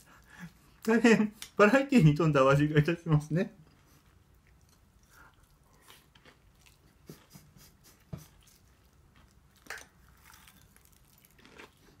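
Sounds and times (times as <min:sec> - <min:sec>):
faint chewing: 0:03.6 - 0:12.0.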